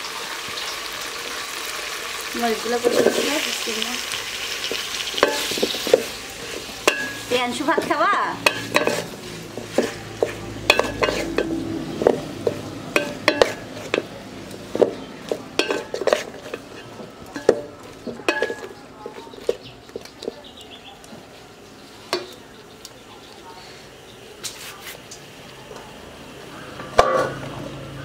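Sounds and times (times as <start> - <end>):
wooden spatula scraping metal pot: 4.4 - 20.4.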